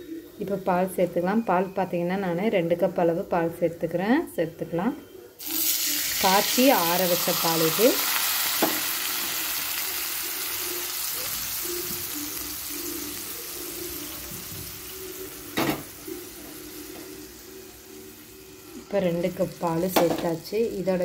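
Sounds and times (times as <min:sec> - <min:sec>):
milk sizzling in hot pan: 0:05.4 - 0:21.0.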